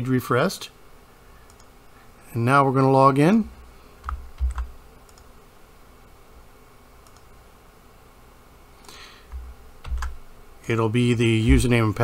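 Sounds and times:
keyboard and mouse clicks: 1.5s - 1.7s, 4.0s - 5.3s, 7.0s - 7.3s, 8.8s - 10.2s.

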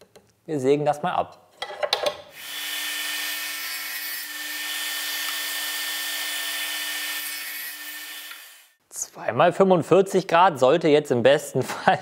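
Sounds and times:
power saw cutting wood: 2.4s - 8.8s.

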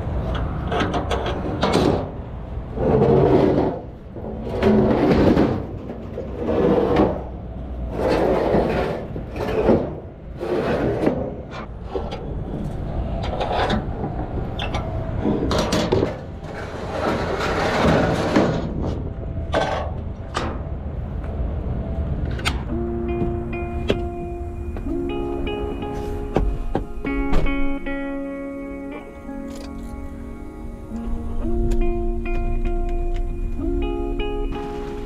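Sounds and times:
metal ramps scraping: 0.2s - 20.7s
metallic clanks and knocks: 0.3s - 2.2s, 13.2s - 20.7s.

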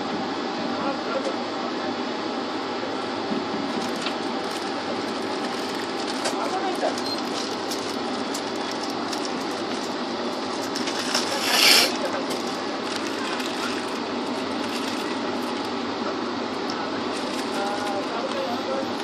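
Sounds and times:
train rumbling on rails: 1.7s - 19.0s.

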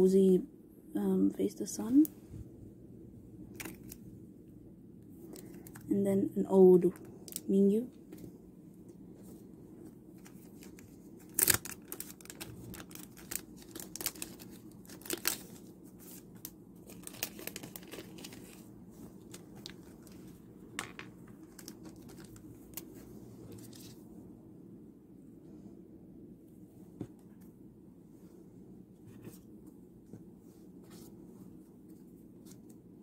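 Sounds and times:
plastic card sleeves crinkling: 3.5s - 4.0s, 5.2s - 5.9s, 10.1s - 24.0s.

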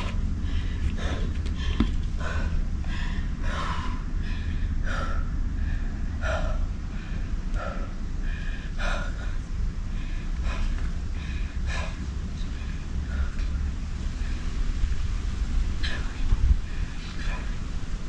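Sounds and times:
person breathing hard: 0.0s - 18.0s
wind on microphone: 12.5s - 18.0s.

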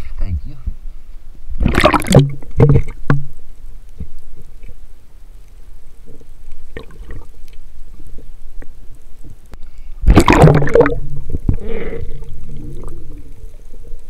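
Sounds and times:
water sloshing and gurgling: 1.4s - 14.0s
water splashing: 1.6s - 3.4s, 6.6s - 8.2s, 10.0s - 14.0s.

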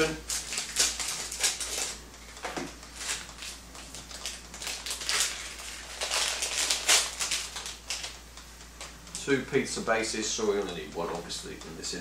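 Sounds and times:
plastic wrapping crinkling: 0.0s - 8.2s.

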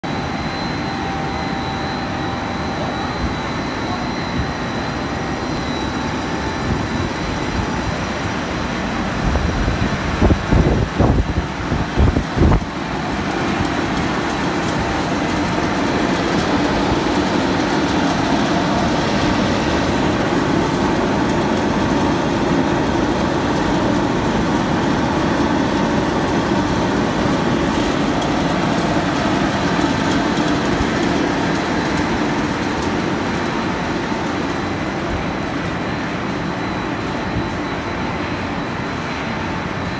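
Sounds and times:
machinery running loudly: 0.0s - 39.9s.

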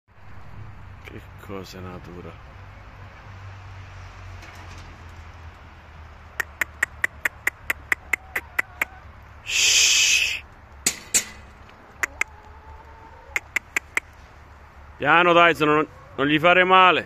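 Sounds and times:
loud hissing burst: 9.4s - 10.4s
sharp knocks: 10.8s - 11.6s.

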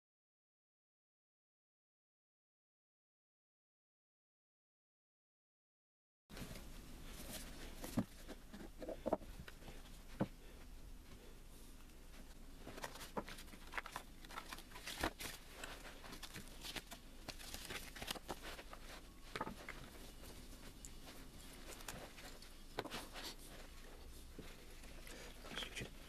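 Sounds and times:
paper and cables rustling: 6.3s - 10.6s, 12.1s - 26.0s
cardboard packaging handled: 12.6s - 20.4s.

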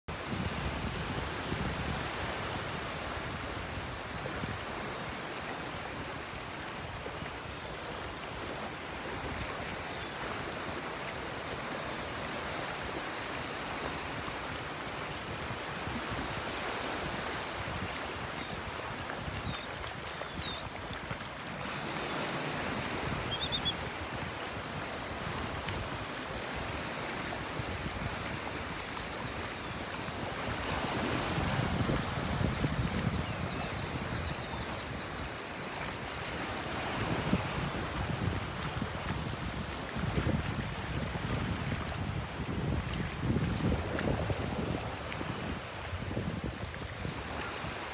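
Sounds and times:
waves lapping on beach: 0.1s - 47.9s
wind on microphone: 0.1s - 47.9s
high shorebird calls: 19.4s - 20.8s, 23.2s - 23.9s.

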